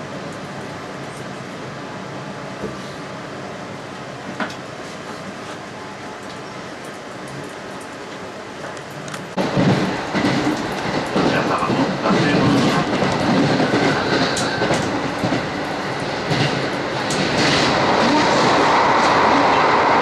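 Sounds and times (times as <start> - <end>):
train wheel and rail noise: 0.0 - 20.0
clickety-clack of rail joints: 4.2 - 20.0.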